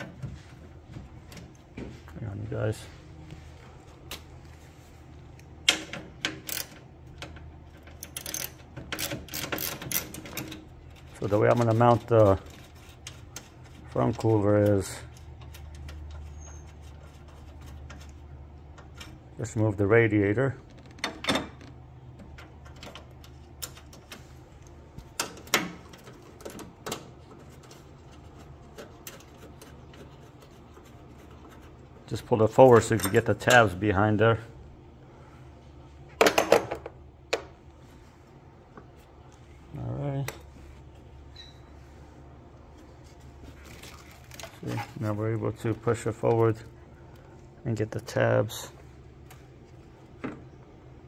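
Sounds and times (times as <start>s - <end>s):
hand ratchet clicking: 7.8s - 10.6s.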